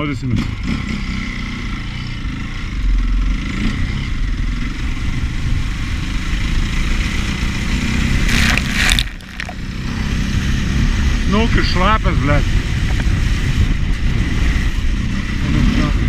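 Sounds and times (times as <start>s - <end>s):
dirt bike engine revving: 6.3s - 11.4s
water splashing: 8.2s - 9.6s.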